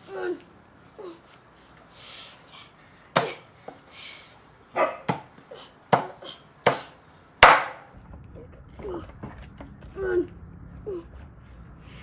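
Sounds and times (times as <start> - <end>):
cleaver chopping through bone: 3.1 - 3.4, 5.0 - 5.3, 5.9 - 7.8.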